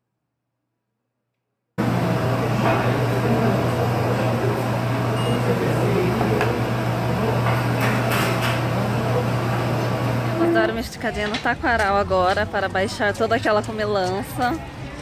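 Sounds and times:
low machine hum: 1.8 - 11.0.

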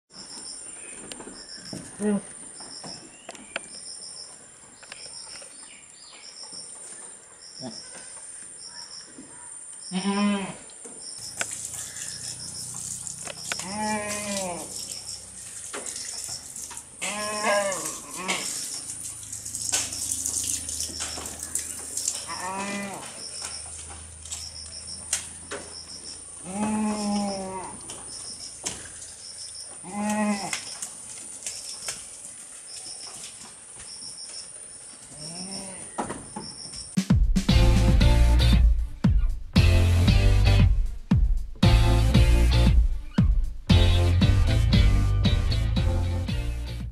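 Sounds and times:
livestock calling: 9.9 - 10.7, 11.4 - 15.0, 17.0 - 18.7, 22.2 - 23.5, 26.4 - 28.4, 35.1 - 36.0.

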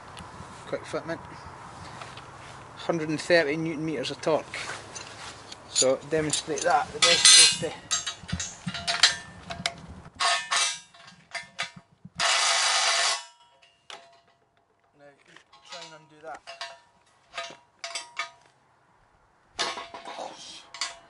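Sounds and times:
spanner clinking on metal: 5.7 - 14.5, 15.5 - 18.5, 20.7 - 21.0.

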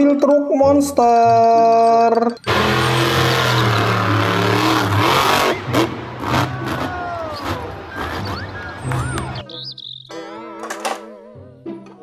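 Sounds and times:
truck engine revving: 2.4 - 9.4
arena crowd noise: 5.0 - 12.0.

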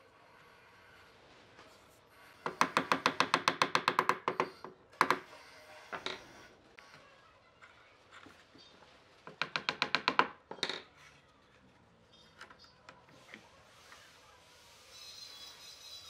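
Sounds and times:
mallet tapping wood: 9.3 - 10.4.

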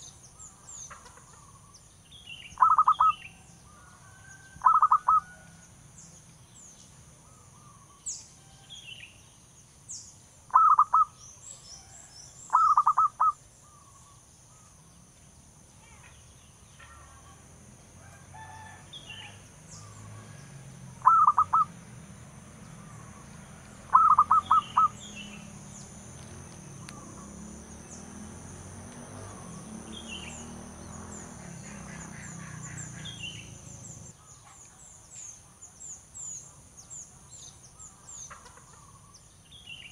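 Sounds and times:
small birds chirping faintly: 0.0 - 39.9
dove staccato cooing: 2.6 - 3.1, 4.6 - 5.3, 10.5 - 11.1, 12.5 - 13.4, 21.0 - 21.7, 23.9 - 25.0.

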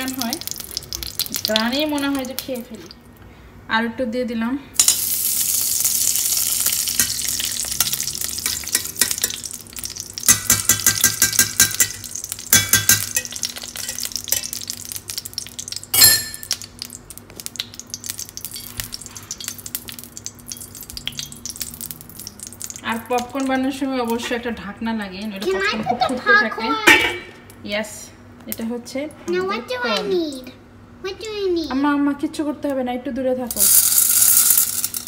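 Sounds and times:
ghee sizzling in a frying pan: 0.0 - 3.0, 4.8 - 24.4, 33.5 - 35.0
hot fat spattering: 0.0 - 3.0, 4.8 - 24.2, 33.5 - 35.0.

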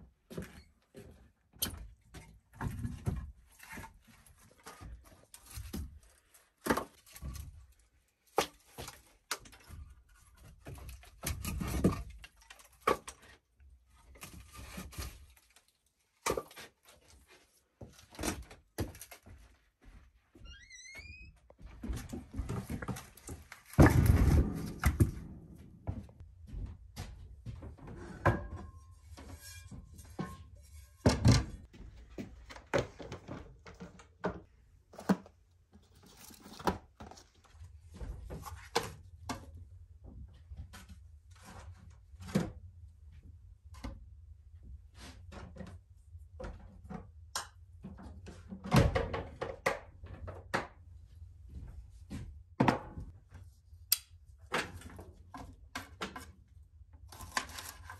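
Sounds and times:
firewood set down on floor: 21.8 - 26.7.

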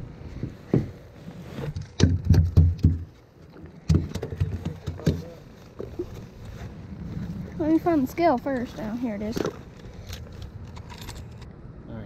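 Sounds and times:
knocks and hollow thumps: 1.7 - 3.2, 3.8 - 6.3.

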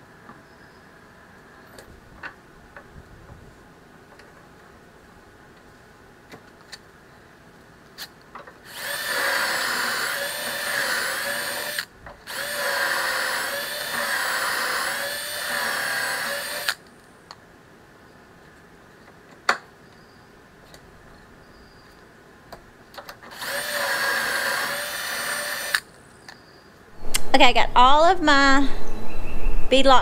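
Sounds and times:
cordless drill boring into wood: 8.7 - 16.8, 23.3 - 25.9.

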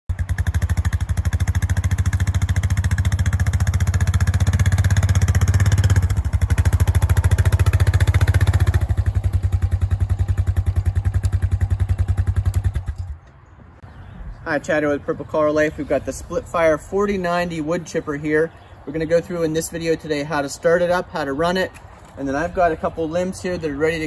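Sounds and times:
atv engine running at low revs: 0.1 - 13.2.

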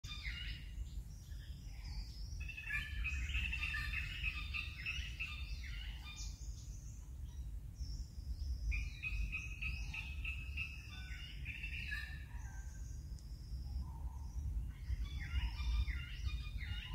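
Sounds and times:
birds chirping: 0.0 - 16.9.

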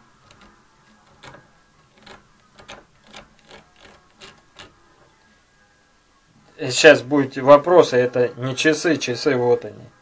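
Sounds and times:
scriber scratching steel: 0.0 - 5.0.

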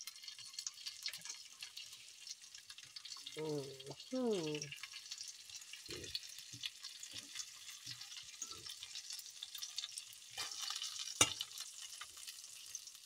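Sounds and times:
fish sizzling in hot oil: 0.0 - 13.0.

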